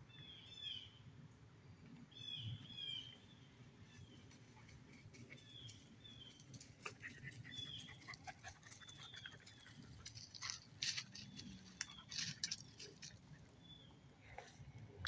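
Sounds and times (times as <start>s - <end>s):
bird chirping: 5.3s - 14.1s
footsteps in dry leaves: 9.4s - 13.2s.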